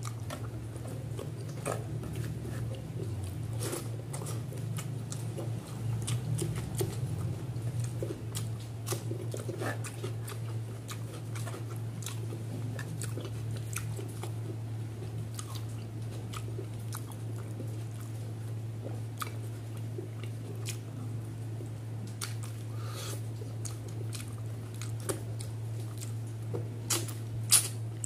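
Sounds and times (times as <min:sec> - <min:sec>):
person chewing with wet mouth clicks: 0:00.0 - 0:28.0
steady low hum: 0:00.0 - 0:28.0.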